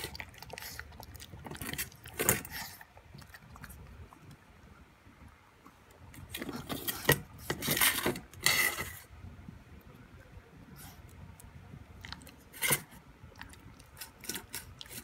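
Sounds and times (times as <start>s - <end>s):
metal bowl scraping on floor: 6.4s - 9.0s.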